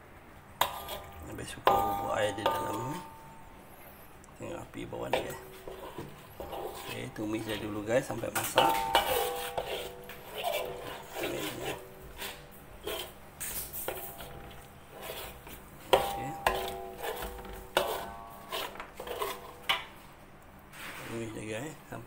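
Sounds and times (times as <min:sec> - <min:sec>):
metal ladle scraping a wok: 0:00.6 - 0:03.2, 0:05.0 - 0:20.0
wok ringing: 0:00.6 - 0:03.6, 0:06.4 - 0:11.9, 0:15.9 - 0:19.9.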